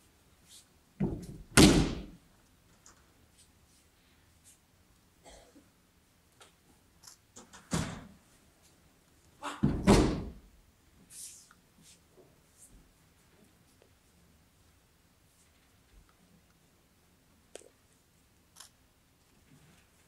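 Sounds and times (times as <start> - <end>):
bodies thudding on mats: 1.0 - 2.2.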